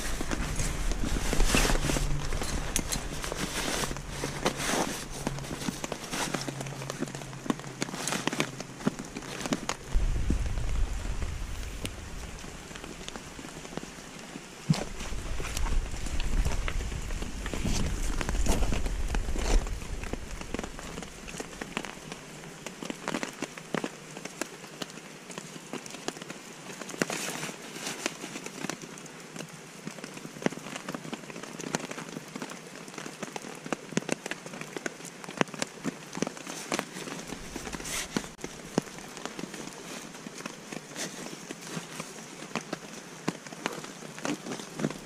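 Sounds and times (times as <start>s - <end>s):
small clicks and scrapes: 0.0s - 10.0s, 14.7s - 45.0s
nylon bags rustling: 0.0s - 23.7s, 35.8s - 45.0s.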